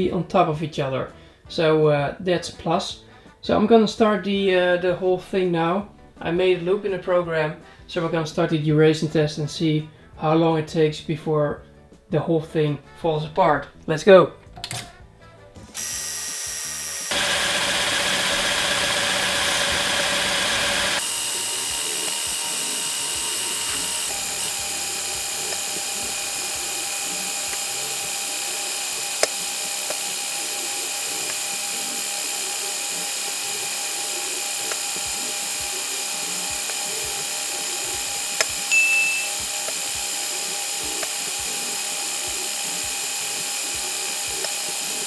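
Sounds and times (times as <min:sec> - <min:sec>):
electric motors whining: 0:15.7 - 0:45.0
sharp click: 0:38.4 - 0:39.8.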